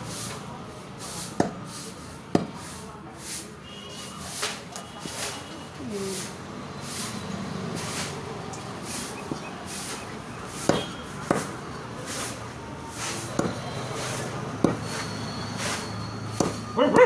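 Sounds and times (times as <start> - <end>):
shop noise: 0.0 - 17.0
knife chopping on wooden block: 10.6 - 11.5, 16.4 - 17.0.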